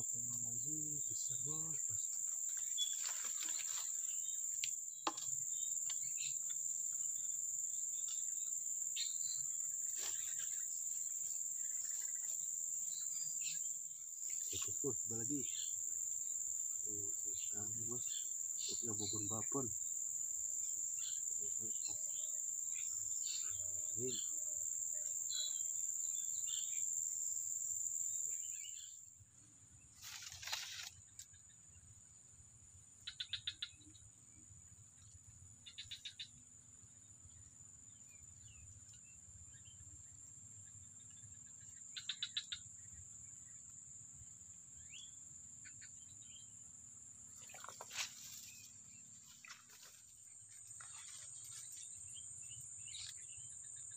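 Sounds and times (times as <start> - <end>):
high-pitched insect drone: 0.0 - 29.0
rapid chirping trills: 39.6 - 43.0.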